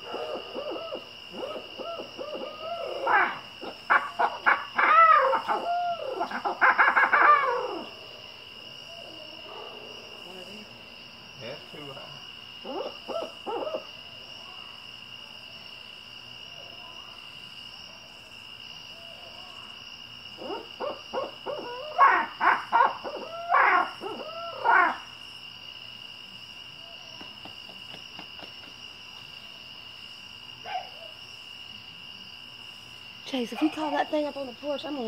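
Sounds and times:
owl hooting and cackling: 0.0 - 7.9, 12.6 - 13.9, 20.4 - 25.1
insects trilling: 0.0 - 35.0.

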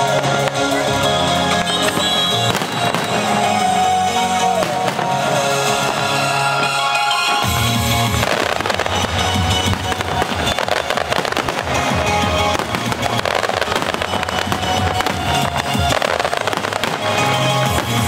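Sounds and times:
fireworks bursting and crackling: 0.0 - 18.0
music playing: 0.0 - 18.0.

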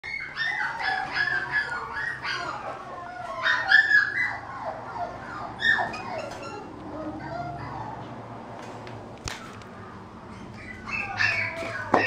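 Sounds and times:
puppy whining and yipping: 0.0 - 8.2, 10.3 - 12.0.

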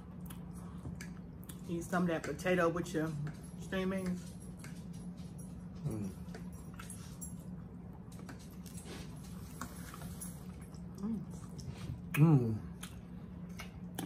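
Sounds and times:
steady low hum: 0.0 - 14.0
faint chewing: 3.1 - 14.0.

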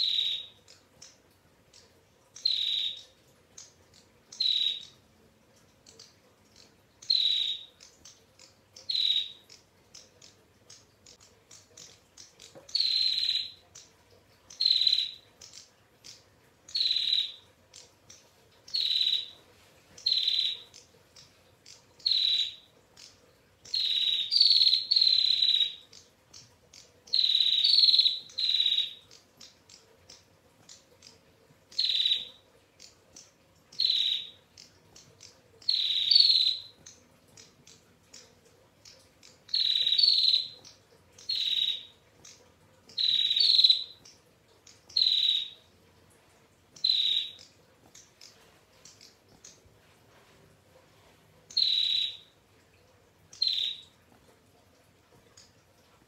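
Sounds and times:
bird trilling call: 39.5 - 40.5.

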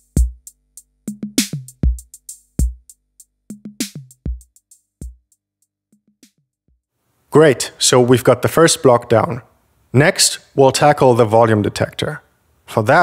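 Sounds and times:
drum machine beat: 0.0 - 6.9.

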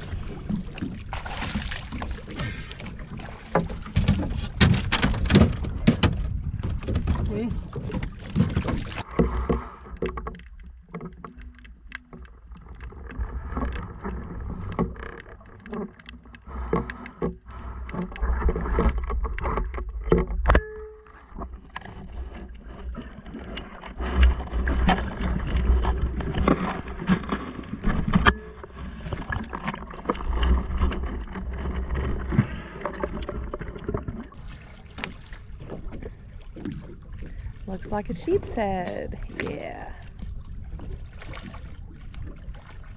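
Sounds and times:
low rumbles: 0.0 - 15.5
muffled underwater sloshing: 0.0 - 42.9
clicks and knocks: 3.5 - 34.3.

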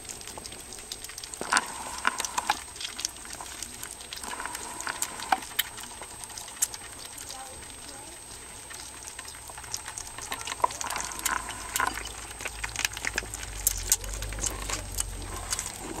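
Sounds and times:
kittens eating wet food: 0.0 - 16.0.

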